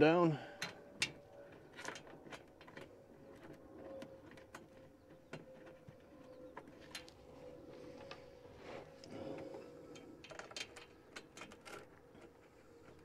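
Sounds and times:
small metal clicks and taps: 0:00.6 - 0:07.2, 0:09.9 - 0:13.0.

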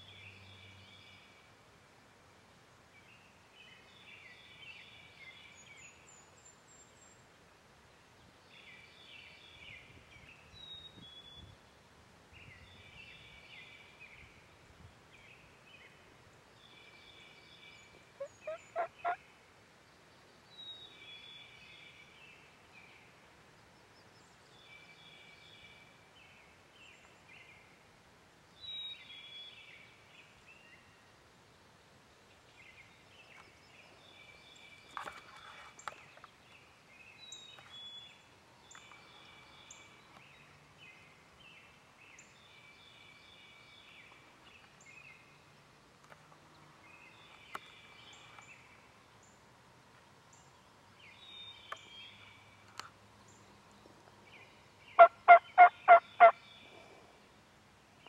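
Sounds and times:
songbirds singing: 0:00.0 - 0:01.6, 0:02.6 - 0:11.7, 0:12.3 - 0:58.0
turkey gobbling: 0:18.2 - 0:19.2, 0:55.0 - 0:56.4.

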